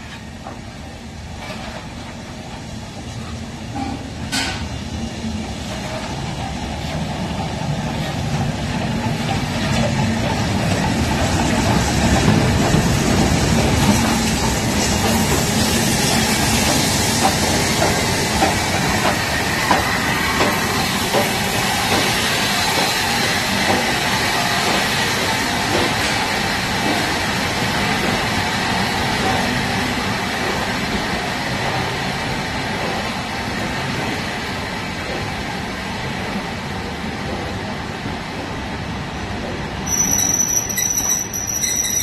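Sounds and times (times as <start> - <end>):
steam locomotive hissing: 0.0 - 35.4
train wheels clicking over rail joints: 3.8 - 4.7, 5.7 - 35.4.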